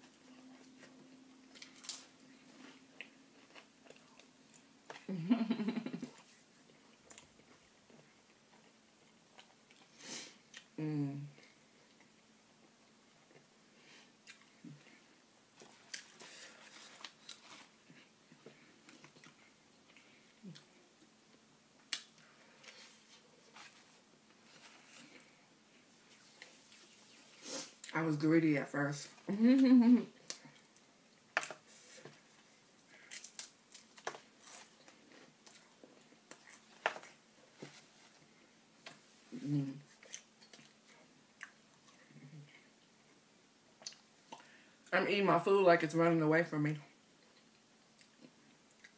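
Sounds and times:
faint chewing: 0.1 - 5.1, 6.0 - 10.8, 14.1 - 21.1, 30.2 - 43.2, 47.2 - 48.9.

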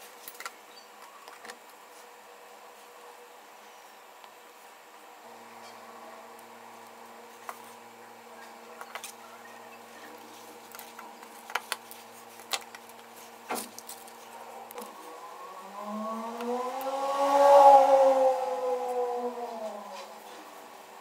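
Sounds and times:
steady low hum: 0.0 - 21.0
rising wavering tone: 14.5 - 20.8.

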